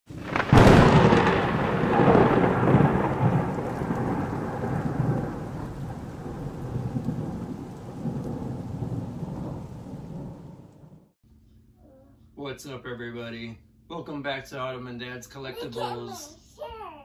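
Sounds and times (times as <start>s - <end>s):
rain hissing: 0.1s - 11.1s
thunder crack and rolling rumble: 0.1s - 11.1s.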